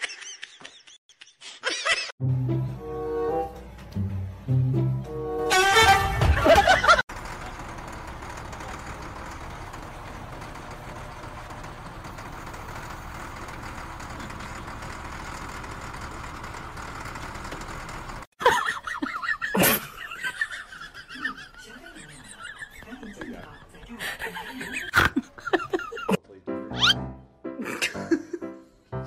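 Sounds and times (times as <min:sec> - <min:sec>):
diesel engine idling: 0:03.5 - 0:18.3.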